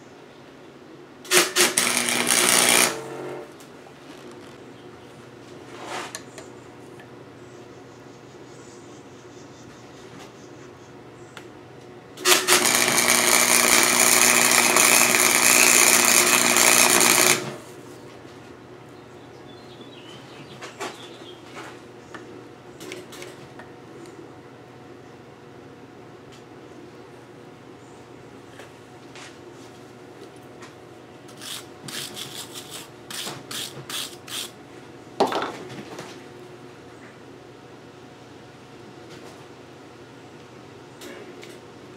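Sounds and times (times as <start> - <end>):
welder arc burning: 1.3 - 3.5, 12.2 - 17.6
hand tool scraping metal tubing: 31.3 - 34.5.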